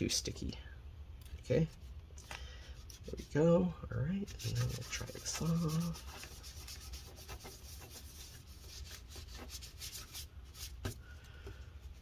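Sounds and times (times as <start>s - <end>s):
wipe scrubbing plastic keyboard: 4.2s - 11.0s.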